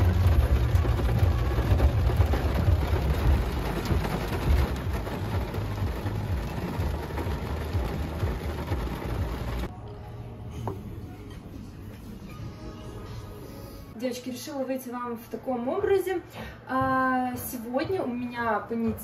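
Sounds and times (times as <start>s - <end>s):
loud rushing noise with low rumble: 0.0s - 9.7s.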